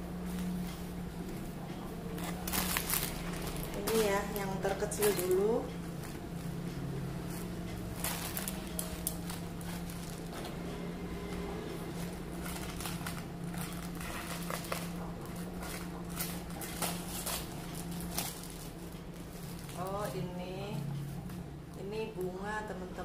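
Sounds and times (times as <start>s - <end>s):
steady low hum: 0.0s - 23.0s
plastic wrapping crinkling: 2.1s - 6.6s, 7.3s - 10.6s, 11.9s - 20.3s.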